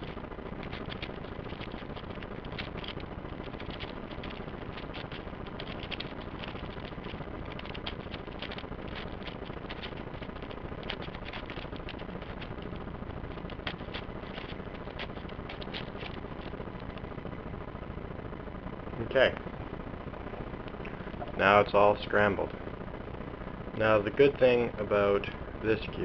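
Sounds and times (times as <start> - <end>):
steady hiss: 0.0 - 26.0
puzzle cube clicking: 0.6 - 10.0, 13.4 - 16.5.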